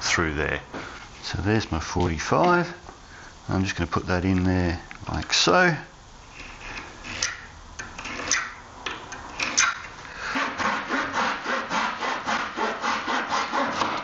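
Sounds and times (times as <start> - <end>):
handsaw cutting wood: 6.4 - 8.6, 9.4 - 14.0.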